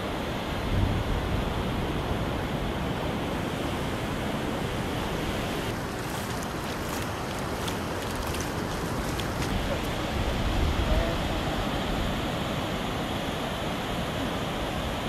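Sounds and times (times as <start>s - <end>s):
surf washing onto beach: 1.3s - 14.7s
wind buffeting microphone: 3.5s - 11.4s.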